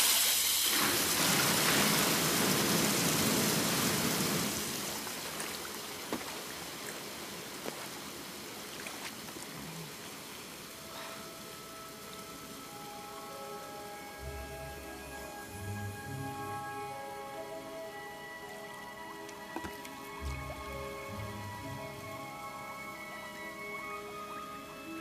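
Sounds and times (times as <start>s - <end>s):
water gushing from bath spouts: 0.0s - 10.8s
water drips and splashes: 0.0s - 13.3s, 18.6s - 22.6s.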